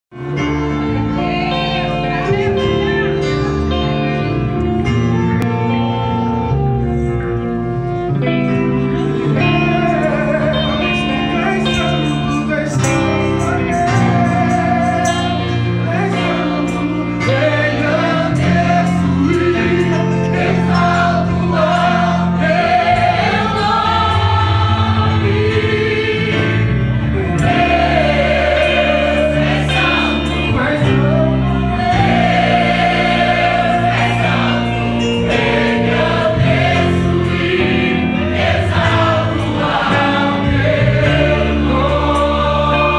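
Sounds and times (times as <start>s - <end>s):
gospel choir singing: 0.2s - 42.9s
held low accompanying notes: 0.2s - 42.9s
man singing into a microphone: 9.5s - 20.3s.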